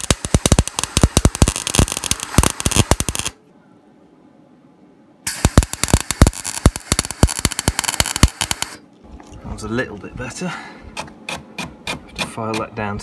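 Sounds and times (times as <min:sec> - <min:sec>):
welder arc crackling: 0:00.0 - 0:03.4, 0:05.3 - 0:08.8.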